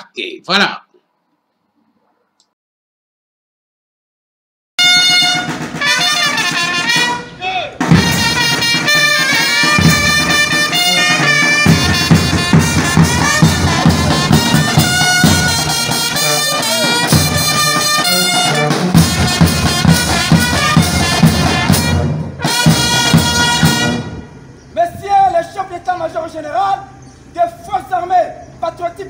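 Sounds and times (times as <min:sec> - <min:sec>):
brass band playing a march: 0:04.8 - 0:24.6
bass drums beat: 0:11.6 - 0:21.9.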